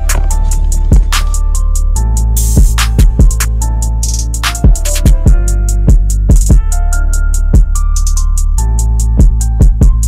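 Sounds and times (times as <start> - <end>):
deep kick drums: 0.0 - 1.3, 9.2 - 10.0
hi-hat strokes: 0.6 - 6.6.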